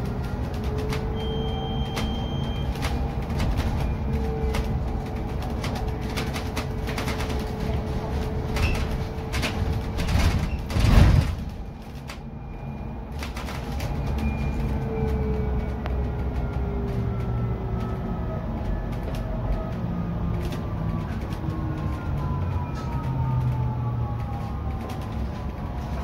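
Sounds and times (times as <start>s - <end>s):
interior rattles and clicks: 0.0s - 26.0s
low road rumble: 0.0s - 26.0s
high beep: 1.2s - 2.7s.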